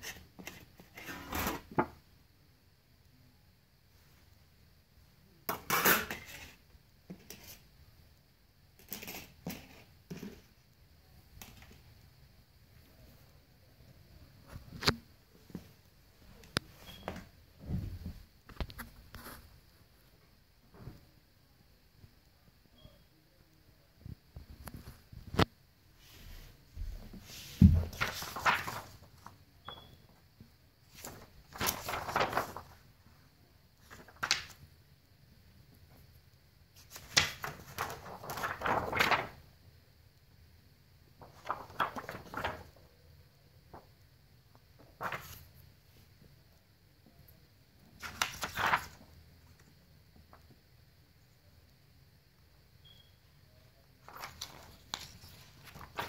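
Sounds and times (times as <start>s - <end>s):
plastic sheets crinkling: 27.1s - 29.8s, 30.9s - 32.9s, 33.8s - 34.6s, 36.8s - 39.5s, 41.2s - 42.8s, 44.8s - 45.6s, 48.0s - 49.2s, 54.0s - 56.0s.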